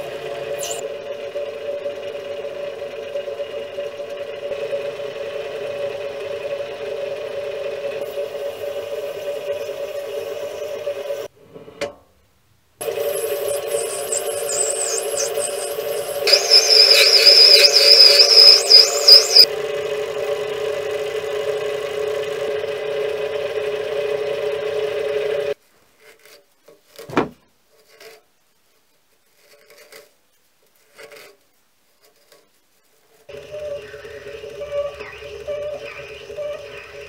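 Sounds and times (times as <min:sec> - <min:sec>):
high wavering cutting whine: 0:00.0 - 0:04.9, 0:07.8 - 0:11.3, 0:12.8 - 0:19.5, 0:33.3 - 0:37.0
lathe running hum: 0:00.0 - 0:11.3, 0:12.8 - 0:25.6, 0:33.3 - 0:37.0
knock: 0:27.1 - 0:27.4.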